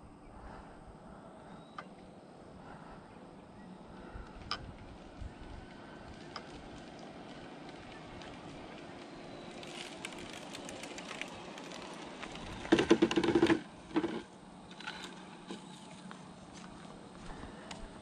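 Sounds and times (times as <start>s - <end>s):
electric drivetrain buzz: 3.7s - 18.0s
light clicks and crackles: 4.2s - 16.9s.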